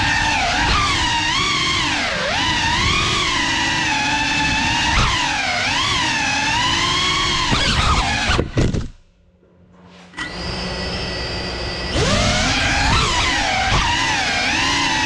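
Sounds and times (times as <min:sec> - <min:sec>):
drone motors whining: 0:00.0 - 0:08.9, 0:10.1 - 0:15.0.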